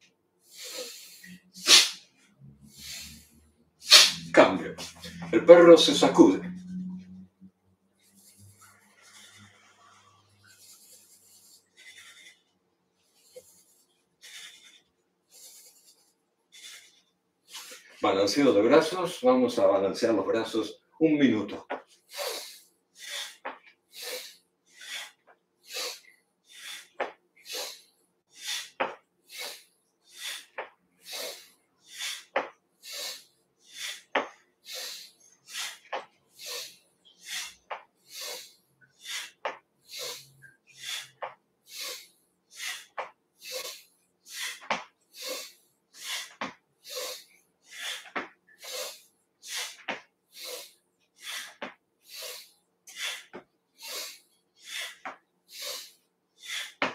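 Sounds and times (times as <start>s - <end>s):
swishes of swinging arms: 1.2s - 2.0s, 3.9s - 7.2s.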